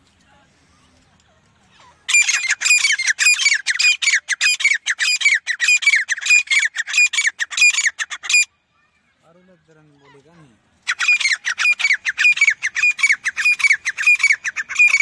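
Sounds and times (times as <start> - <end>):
francolin calling: 1.8 - 8.5, 10.8 - 15.0.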